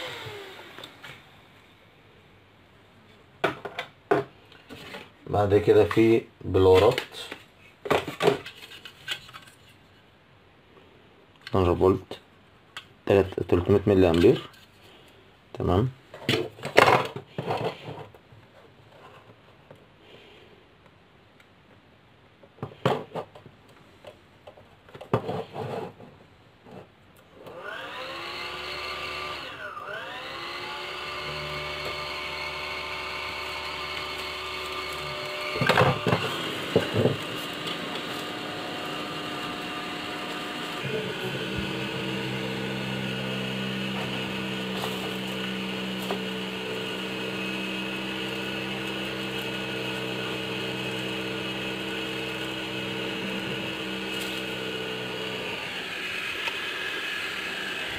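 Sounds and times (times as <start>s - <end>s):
blower fan whirring: 0.0s - 1.6s, 27.5s - 57.9s.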